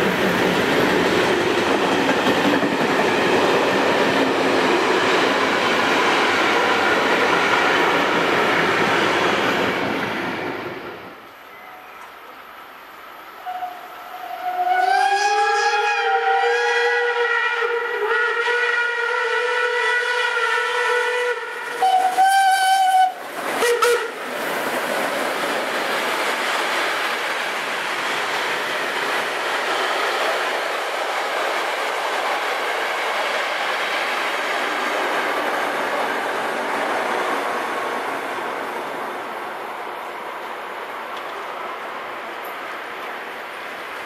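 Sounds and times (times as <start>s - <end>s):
train coaches passing: 0.0s - 44.0s
steam locomotive whistle: 13.4s - 24.2s.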